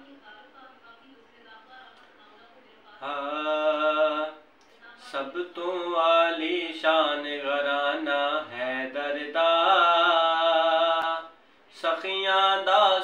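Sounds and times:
man singing devotional poem: 3.0 - 13.0.

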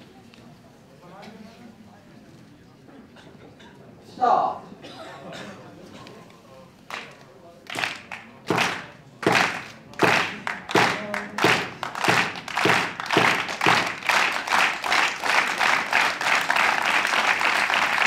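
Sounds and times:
crowd applause: 6.9 - 18.0
crowd clapping in unison: 6.9 - 18.0.

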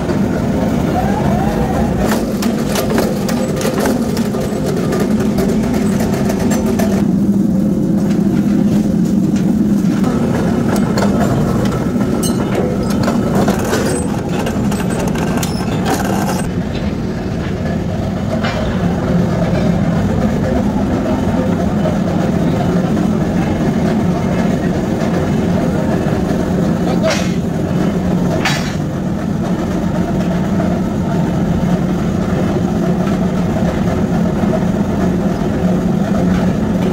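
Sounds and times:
metal clanks and knocks: 10.1 - 17.7, 28.4 - 28.9.

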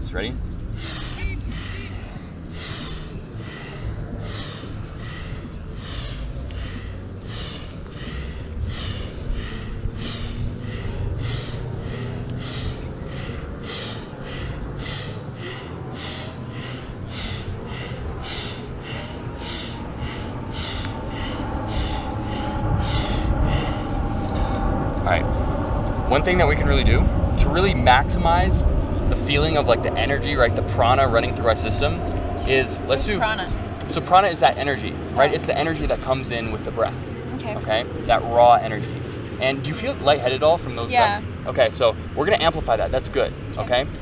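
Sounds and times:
forceful breathing through nose: 0.7 - 25.9.

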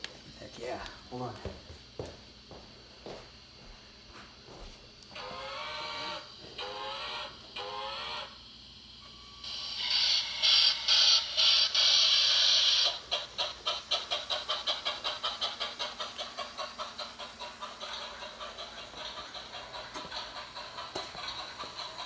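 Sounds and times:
steam hissing: 5.1 - 22.0
steam locomotive chuffing: 5.1 - 22.0.

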